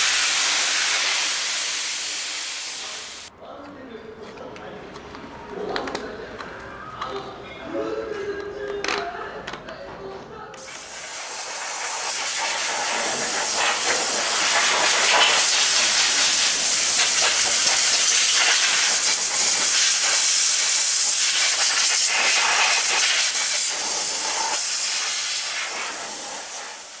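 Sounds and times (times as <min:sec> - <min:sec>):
spray gun hissing: 0:00.0 - 0:03.3, 0:10.6 - 0:27.0.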